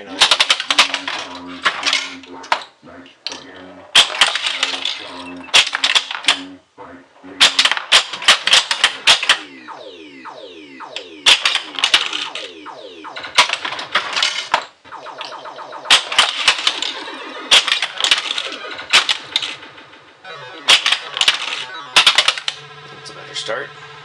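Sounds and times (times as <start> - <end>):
electronic game sound effects: 0.0 - 2.4, 4.0 - 6.6, 7.3 - 24.0
steel ball striking targets: 7.4 - 22.6.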